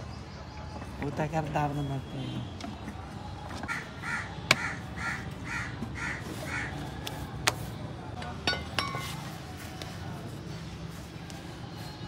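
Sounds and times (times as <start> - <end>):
bird harsh calls: 3.7 - 6.8.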